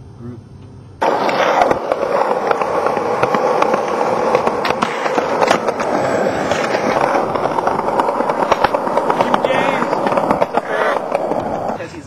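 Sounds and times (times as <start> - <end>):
skateboard clicks and clacks: 1.0 - 11.8
skateboard wheels rolling on concrete: 1.0 - 12.0.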